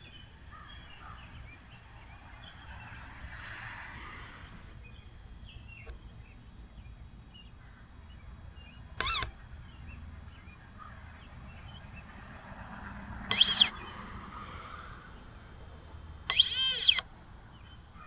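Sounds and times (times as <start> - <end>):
sandhill cranes calling: 13.3 - 13.8, 16.3 - 17.0.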